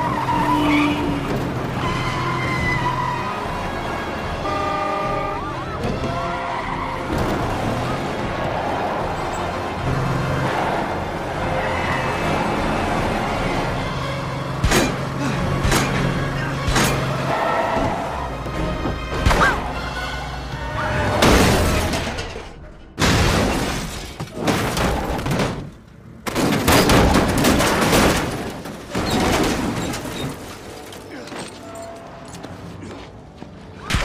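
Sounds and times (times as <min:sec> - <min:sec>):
action film music: 0:01.1 - 0:23.0.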